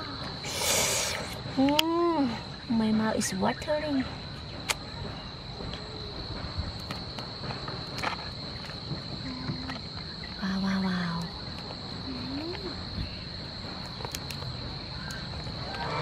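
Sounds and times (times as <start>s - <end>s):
insect trill: 0.0s - 16.0s
shells cracking: 13.8s - 15.8s.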